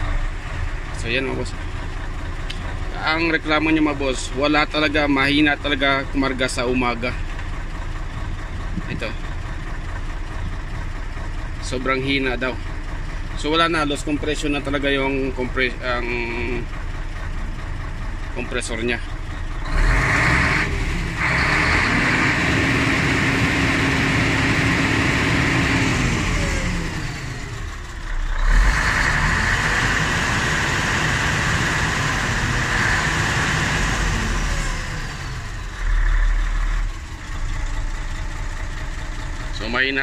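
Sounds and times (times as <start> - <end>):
diesel truck engine revving: 0.0 - 40.0.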